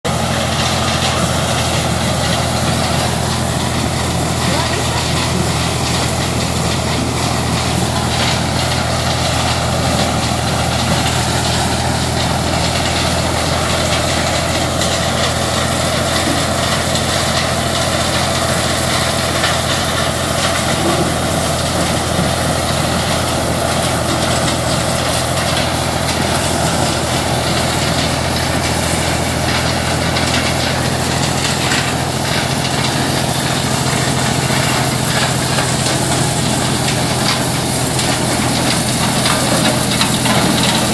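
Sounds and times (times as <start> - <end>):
corn sheller rushing: 0.0 - 40.9
tractor engine running: 0.0 - 40.9.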